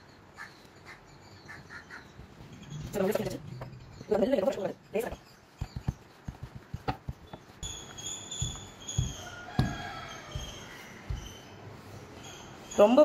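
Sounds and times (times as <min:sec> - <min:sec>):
rolling pin knocking on board: 0:08.4 - 0:11.4.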